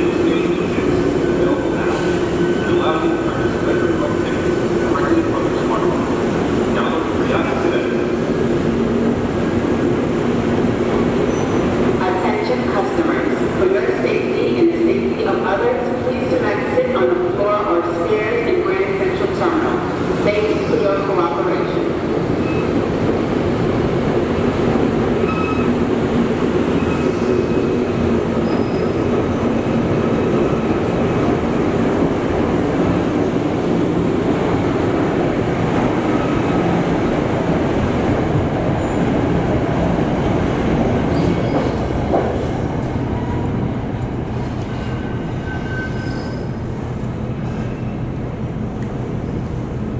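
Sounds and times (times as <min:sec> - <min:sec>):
high wheel squeals: 0:28.4 - 0:29.1, 0:44.8 - 0:46.6.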